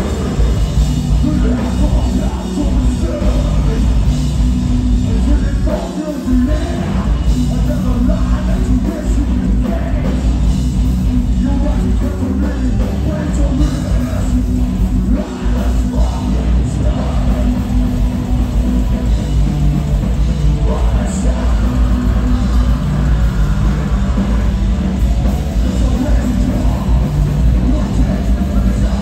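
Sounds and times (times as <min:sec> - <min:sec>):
metal band playing live: 0:00.0 - 0:29.0.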